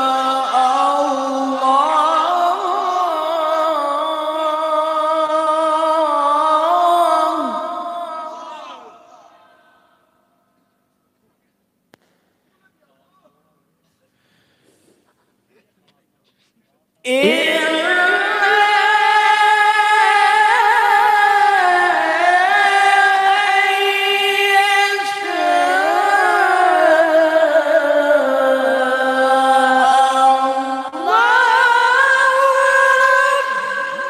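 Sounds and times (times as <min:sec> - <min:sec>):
breath: 0:13.9 - 0:15.3
man chanting melodically: 0:17.0 - 0:34.0.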